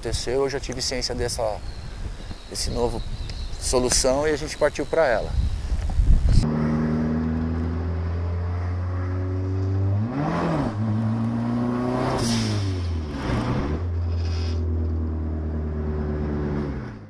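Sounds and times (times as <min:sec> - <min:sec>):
car engine running: 0:13.0 - 0:16.6.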